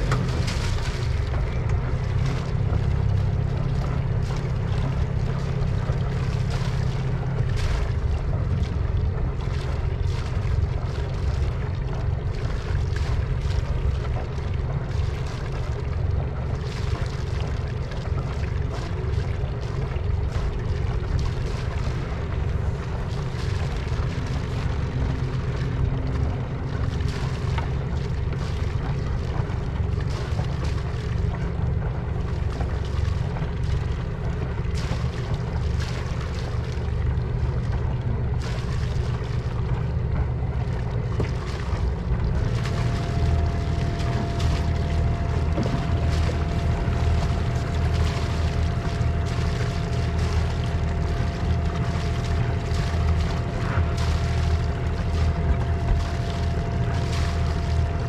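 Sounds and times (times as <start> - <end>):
boat diesel engine running: 0.0 - 58.0.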